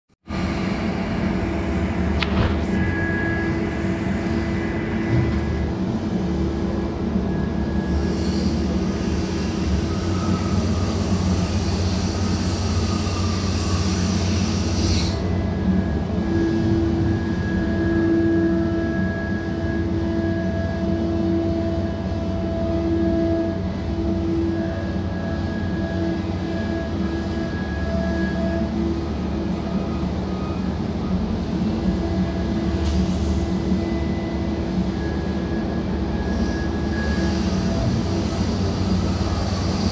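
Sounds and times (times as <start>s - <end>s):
crane engine and hydraulics drone: 0.3s - 39.9s
humming whine: 0.4s - 5.8s
hiss: 7.9s - 15.2s.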